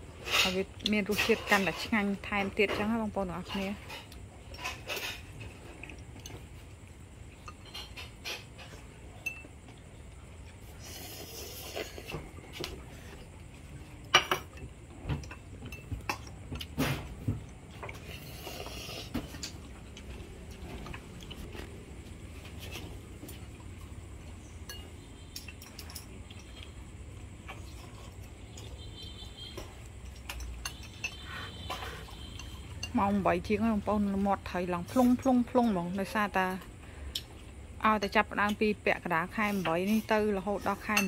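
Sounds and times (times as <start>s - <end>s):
utensils clinking on ceramic bowls: 24.6s - 26.8s, 29.6s - 33.7s.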